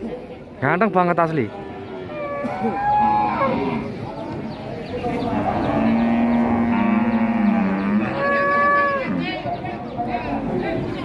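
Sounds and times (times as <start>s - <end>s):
cattle mooing: 2.0s - 3.9s, 5.3s - 9.3s.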